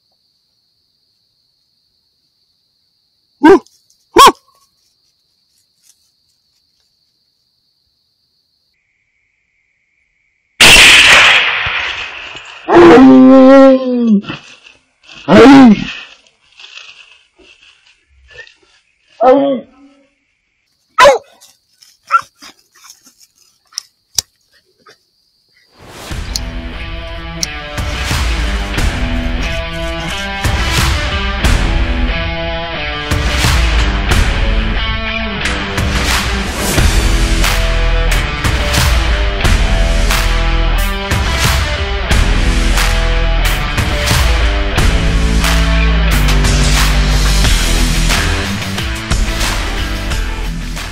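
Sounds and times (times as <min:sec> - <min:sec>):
crickets trilling: 0:00.0 - 0:31.3
coyote yelping: 0:03.4 - 0:04.6, 0:21.0 - 0:21.3, 0:22.0 - 0:22.9
dog barking: 0:03.4 - 0:04.6, 0:21.0 - 0:21.4, 0:22.1 - 0:22.6.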